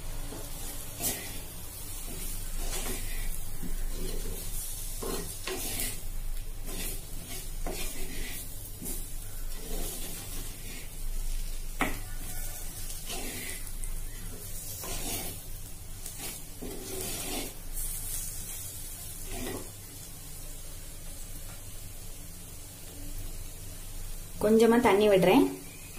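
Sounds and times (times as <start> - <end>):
light sizzle: 0.0 - 25.9
wooden spatula scraping a pot: 0.2 - 19.8.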